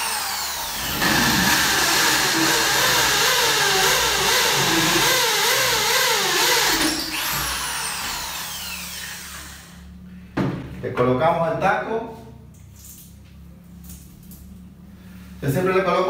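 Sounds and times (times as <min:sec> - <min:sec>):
electric drill boring into wall: 0:00.0 - 0:09.8.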